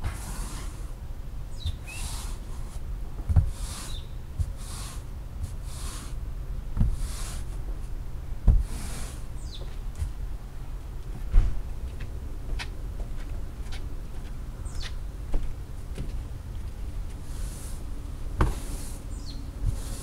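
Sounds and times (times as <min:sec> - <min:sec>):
brush scrubbing wet rug: 0:00.0 - 0:00.9, 0:01.9 - 0:02.8, 0:03.4 - 0:06.2, 0:06.8 - 0:07.6, 0:08.5 - 0:09.3, 0:19.6 - 0:20.0.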